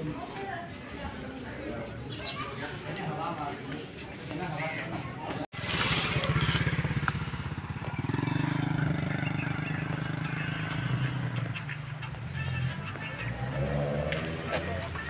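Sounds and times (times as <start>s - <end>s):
vehicle engine running: 5.6s - 15.0s.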